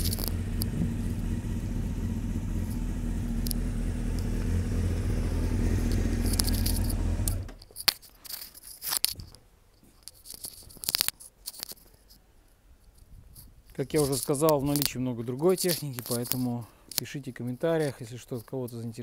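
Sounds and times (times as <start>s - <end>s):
metallic rattles: 0.0s - 1.4s, 5.4s - 7.9s
motorcycle engine idling: 0.0s - 7.6s
sharp clicks: 5.8s - 7.7s.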